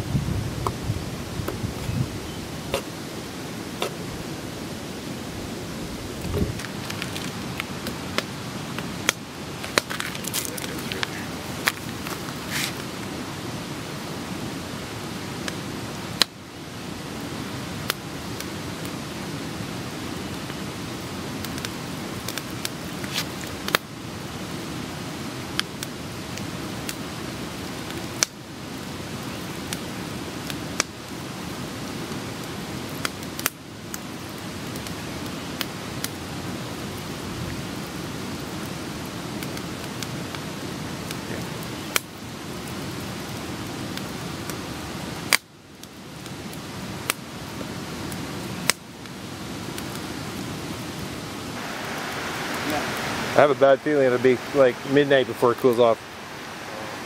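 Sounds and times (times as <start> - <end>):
waterfall rushing: 0.8 - 32.9, 49.3 - 57.0.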